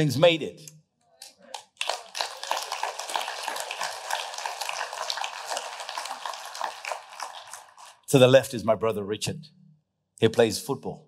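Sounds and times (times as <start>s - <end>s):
crowd applauding: 1.5s - 8.0s.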